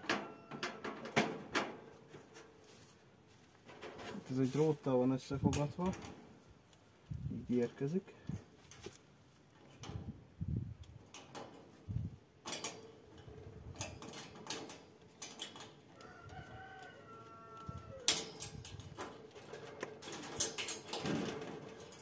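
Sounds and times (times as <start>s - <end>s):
rooster crowing: 0.0s - 0.8s, 15.9s - 18.4s
wire cage parts clinking: 11.0s - 22.0s.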